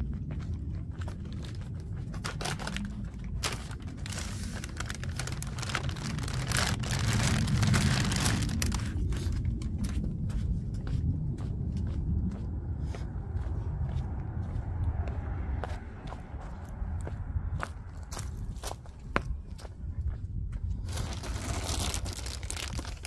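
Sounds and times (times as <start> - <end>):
plastic bags rustling: 2.2 - 9.1, 20.8 - 23.0.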